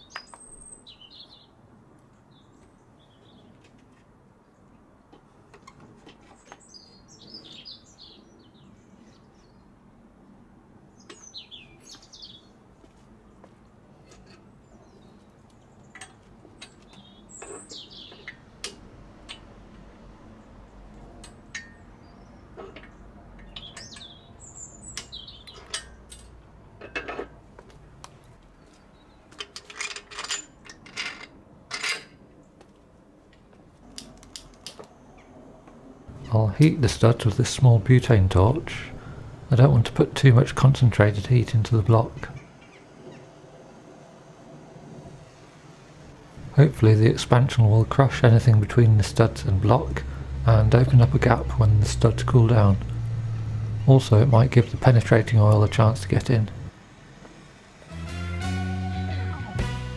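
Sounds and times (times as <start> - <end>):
small birds chirping: 0.0 - 1.6, 2.2 - 3.7, 6.2 - 9.8, 10.9 - 12.6, 13.2 - 18.7, 20.3 - 26.0, 28.5 - 29.3, 34.8 - 43.8.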